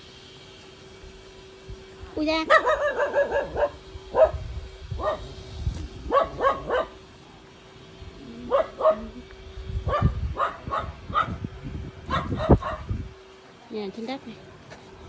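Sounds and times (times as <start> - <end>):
dog barking: 2.5 - 4.4, 5.0 - 5.3, 6.1 - 7.0, 8.5 - 9.2, 9.9 - 11.4, 12.1 - 12.9.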